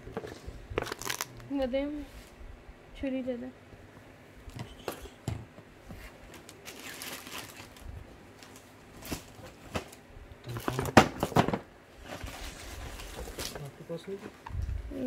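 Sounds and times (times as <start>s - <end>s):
cardboard and tape rustling: 0.0s - 1.4s, 5.8s - 14.4s.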